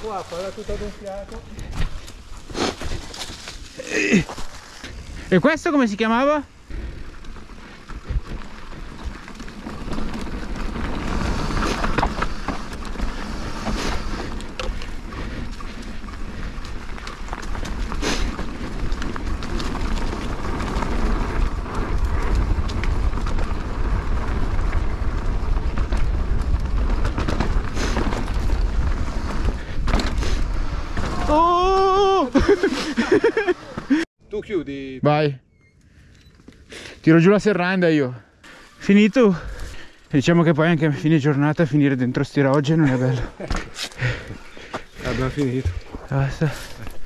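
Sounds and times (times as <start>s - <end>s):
bike rattling: 0.0s - 34.0s, 35.8s - 47.0s
tyre roar: 1.5s - 5.4s, 27.2s - 34.0s.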